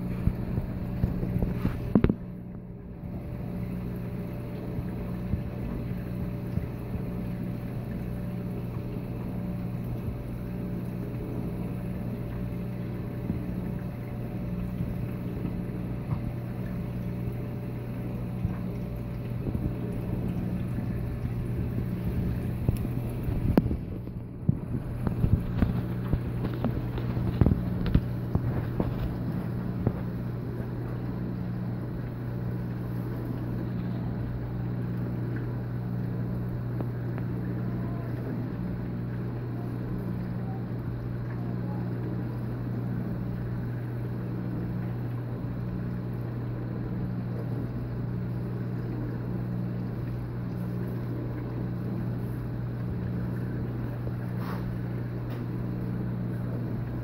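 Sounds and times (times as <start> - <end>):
aquarium pump humming: 0.0 - 57.0
circulating water rushing: 0.0 - 57.0
higher pulsing hum: 0.0 - 57.0.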